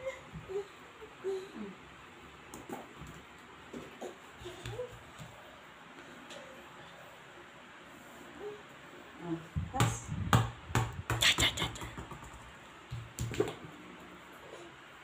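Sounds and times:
basketball bouncing on tiled floor: 4.6 - 5.3, 9.6 - 13.7.

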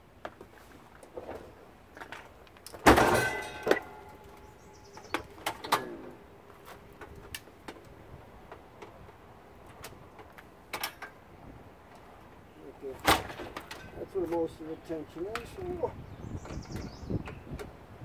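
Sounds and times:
light metal clanks and clicks: 1.0 - 7.9, 8.5 - 11.2, 13.0 - 14.5
dishwasher door metal clanging: 2.9 - 4.2.

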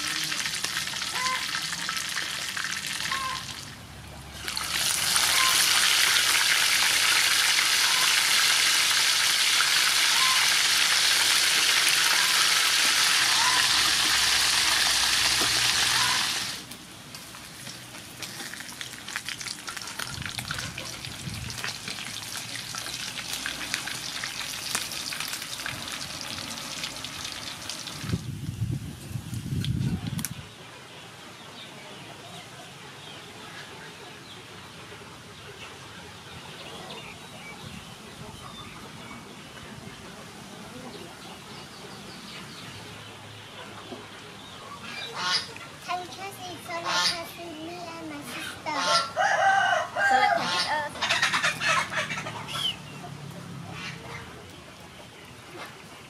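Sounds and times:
fish sizzling in oil: 4.4 - 28.1.

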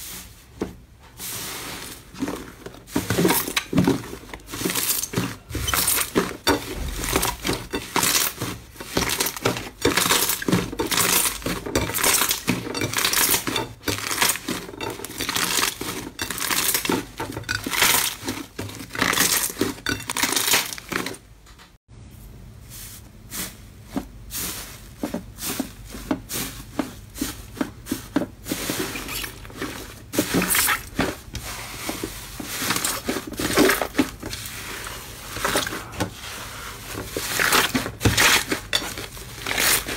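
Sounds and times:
slime squelching and crackling: 1.4 - 21.2.

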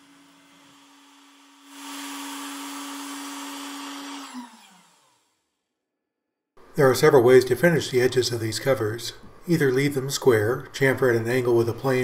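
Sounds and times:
router spindle whining: 0.0 - 5.4.

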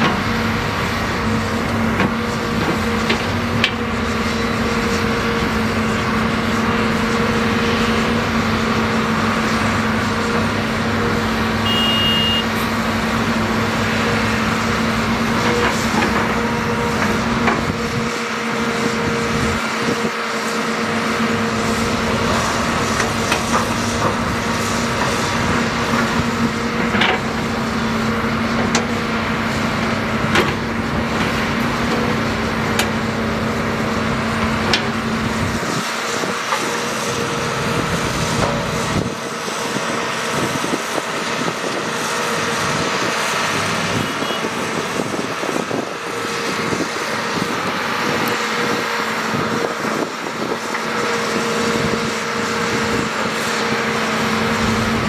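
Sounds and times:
excavator diesel engine droning: 0.0 - 55.0
high beep: 11.6 - 12.5.

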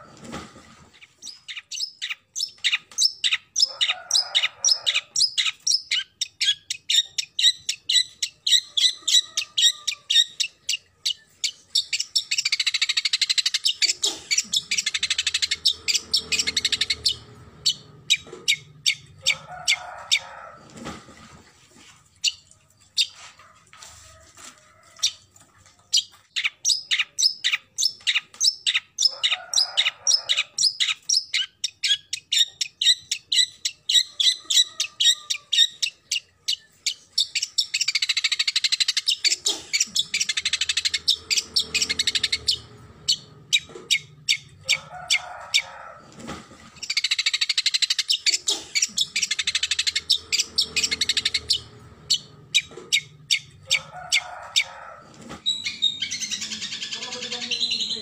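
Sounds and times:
bird harsh calls and chatter: 25.9 - 45.7, 46.8 - 58.0.

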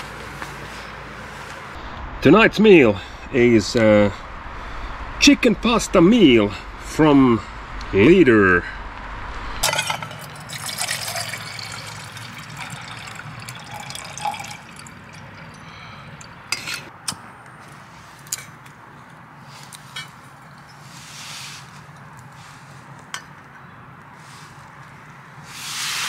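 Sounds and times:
water gurgling into pot: 9.6 - 16.4.

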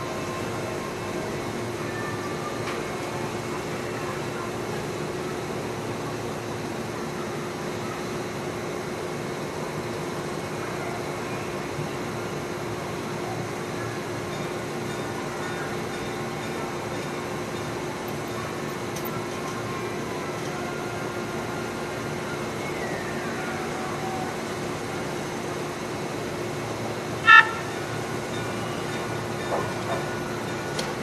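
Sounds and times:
constant hum: 0.0 - 31.0
rotating brushes whirring on train: 0.0 - 31.0
short loud train horn toot: 27.2 - 27.8.

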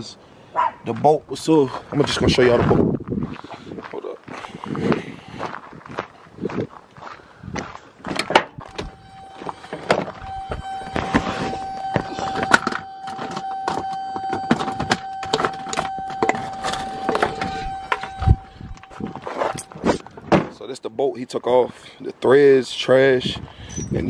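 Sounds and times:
steady high-pitched whine: 8.7 - 20.2.

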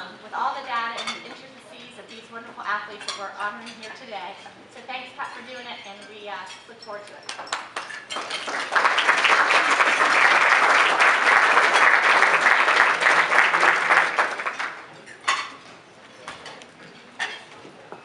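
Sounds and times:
audience applauding: 7.5 - 15.0.

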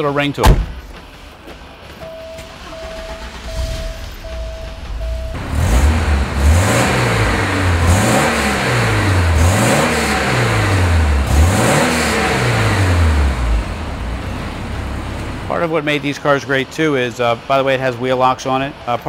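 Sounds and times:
car engine revving: 2.6 - 15.6.

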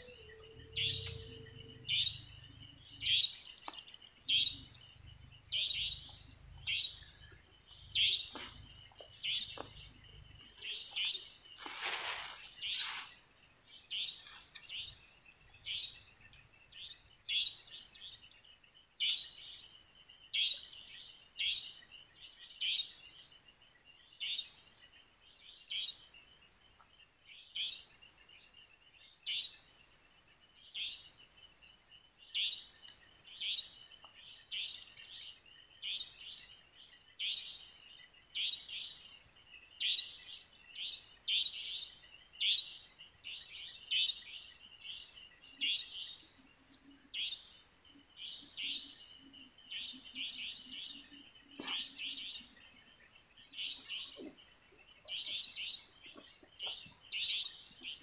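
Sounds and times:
high-pitched insect drone: 0.0 - 3.4.

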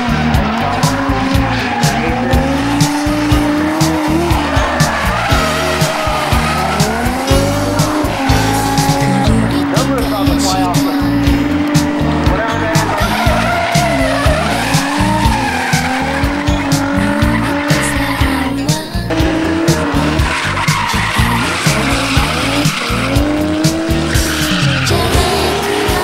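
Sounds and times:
car engine revving: 0.0 - 26.0
tyre squeal: 12.7 - 18.2, 19.9 - 26.0.

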